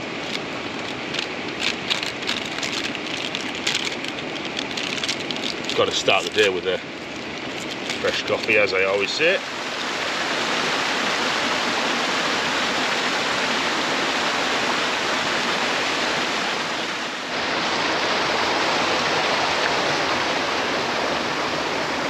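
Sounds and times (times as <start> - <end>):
waterfall rushing: 8.0 - 22.0.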